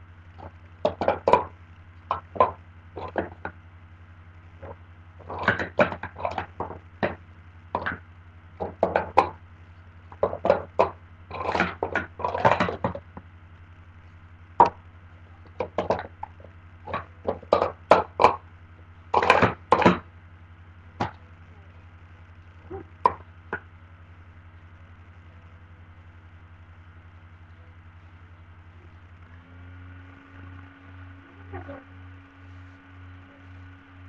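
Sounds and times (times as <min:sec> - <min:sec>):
plastic cups clacking: 0:00.4 - 0:01.5, 0:02.1 - 0:03.6, 0:04.6 - 0:07.2, 0:07.8 - 0:08.0, 0:08.6 - 0:09.4, 0:10.1 - 0:13.2, 0:15.5 - 0:18.4, 0:19.2 - 0:20.0.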